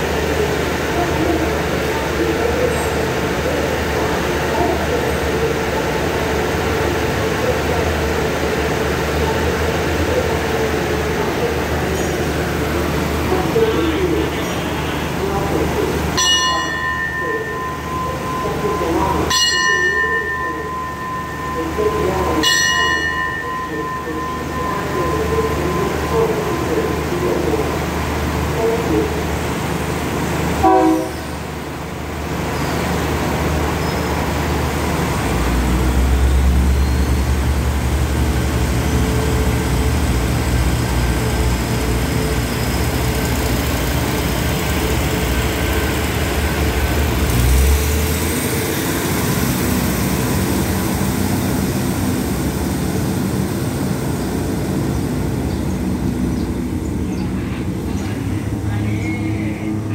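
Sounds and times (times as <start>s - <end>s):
diesel engine rumble: 0.0s - 59.9s
train horn toot: 30.6s - 31.4s.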